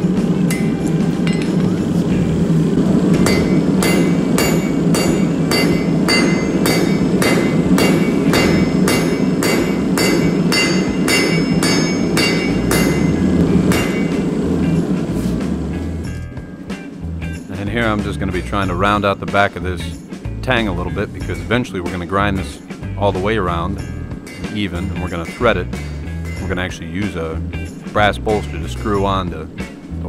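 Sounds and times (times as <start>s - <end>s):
low rumble: 0.0s - 21.6s, 22.2s - 30.0s
hammer striking metal on anvil: 0.4s - 1.9s, 3.1s - 14.9s, 23.8s - 26.6s.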